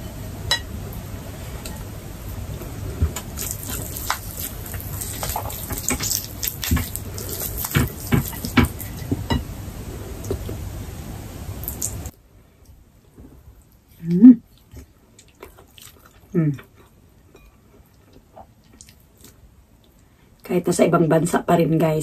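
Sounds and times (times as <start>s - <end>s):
chewing: 3.2s - 9.2s, 14.5s - 19.4s.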